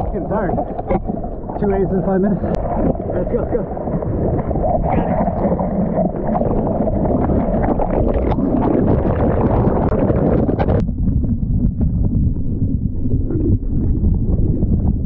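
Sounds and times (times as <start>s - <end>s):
seawater rushing and splashing: 0.0s - 10.8s
wind buffeting microphone: 0.0s - 15.0s.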